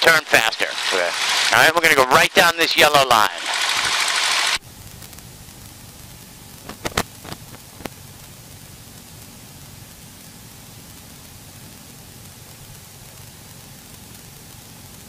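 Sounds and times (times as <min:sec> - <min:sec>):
headset static hiss: 0:04.6 - 0:15.0
sharp clicks: 0:06.7 - 0:08.0.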